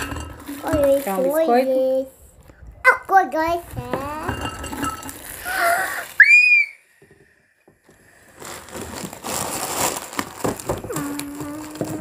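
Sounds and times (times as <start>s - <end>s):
plastic packaging crinkling: 0.0s - 1.8s, 4.8s - 6.4s, 8.0s - 12.0s
person humming: 10.8s - 12.0s.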